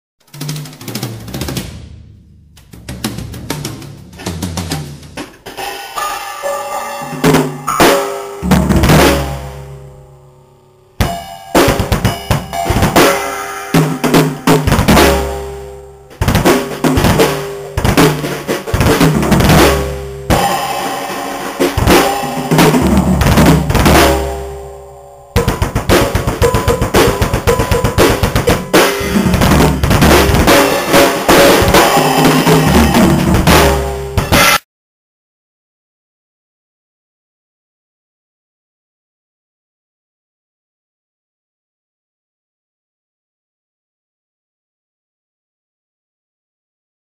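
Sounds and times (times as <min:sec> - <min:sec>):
drum kit solo fills: 0:00.2 - 0:34.6.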